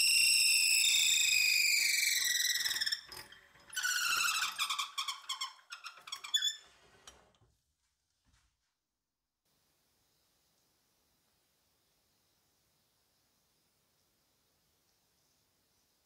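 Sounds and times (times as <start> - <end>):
drill bit squealing in wood: 0.0 - 6.7.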